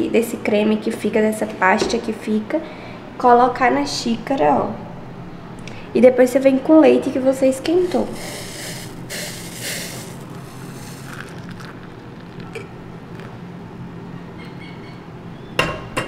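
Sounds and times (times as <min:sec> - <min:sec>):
low steady hum: 0:00.0 - 0:16.0
milk pouring into cup: 0:07.9 - 0:13.4
cup clink: 0:11.0 - 0:12.7.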